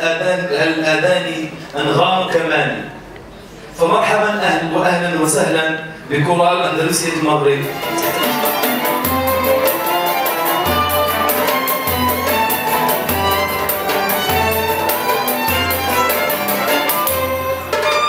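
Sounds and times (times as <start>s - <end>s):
bowed strings: 7.6s - 18.0s
frame drum: 7.6s - 18.0s
oud: 7.6s - 18.0s.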